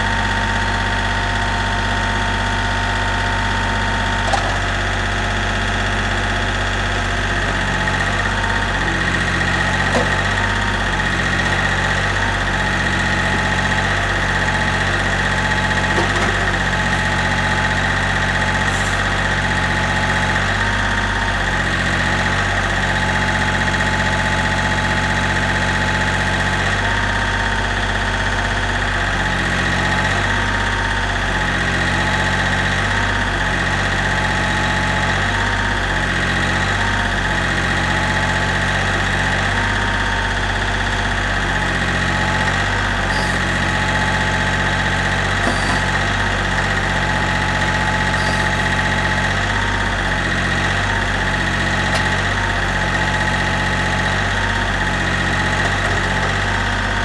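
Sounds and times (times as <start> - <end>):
tractor diesel engine running: 0.0 - 57.0
hydraulic whine: 40.9 - 57.0.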